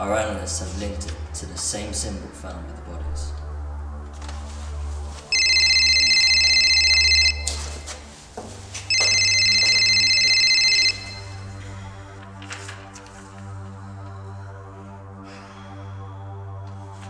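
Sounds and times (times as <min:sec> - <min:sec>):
low droning music: 0:00.0 - 0:17.0
telephone ringing: 0:05.3 - 0:07.9, 0:08.9 - 0:11.7.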